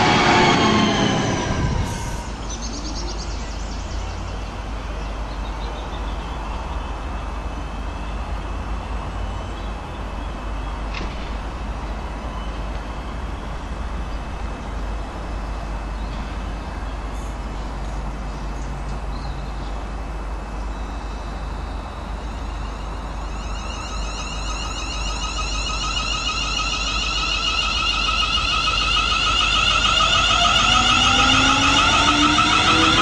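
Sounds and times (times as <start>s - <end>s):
electric train motors whining: 0.0s - 4.6s, 21.0s - 33.0s
low motor tones rising: 0.0s - 4.6s, 21.9s - 33.0s.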